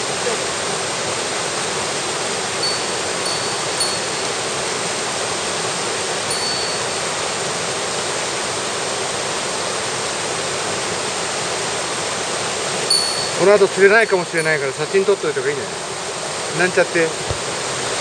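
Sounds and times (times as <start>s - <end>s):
stream rushing over boulders: 0.0s - 18.0s
high thin notes: 2.6s - 7.4s, 12.9s - 15.4s.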